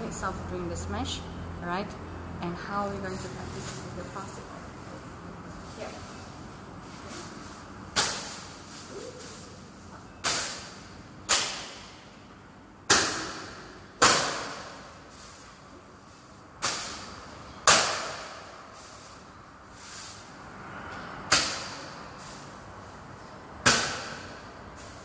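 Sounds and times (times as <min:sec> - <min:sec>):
racket swishing smacks: 0:07.9 - 0:09.1, 0:10.2 - 0:12.0.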